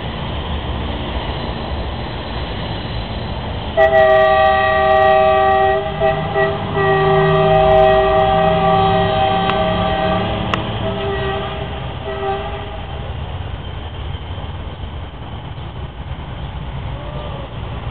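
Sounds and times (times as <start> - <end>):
railcar low rumble: 0.0 - 17.9
train horn blast: 3.8 - 13.1.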